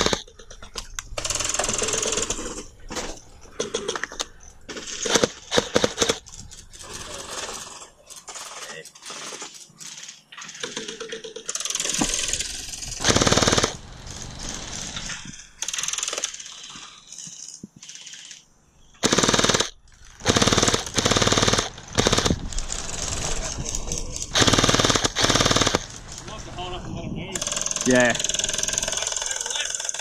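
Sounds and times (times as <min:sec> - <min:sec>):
gel blaster firing full-auto bursts: 0:00.0 - 0:00.3, 0:05.0 - 0:06.2, 0:11.6 - 0:16.7, 0:19.0 - 0:23.6, 0:24.3 - 0:26.2, 0:27.4 - 0:30.0.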